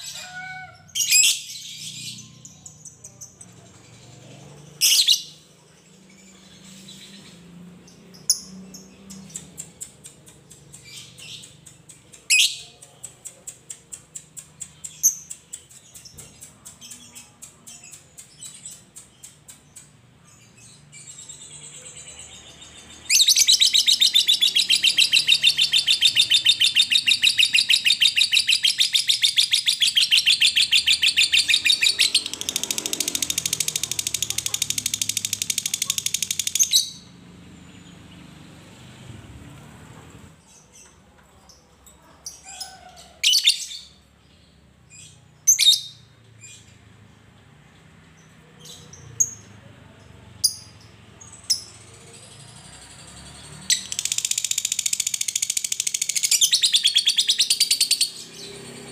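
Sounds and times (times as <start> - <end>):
lovebird ticking calls and chirps: 4.8 - 37.1, 50.4 - 58.8.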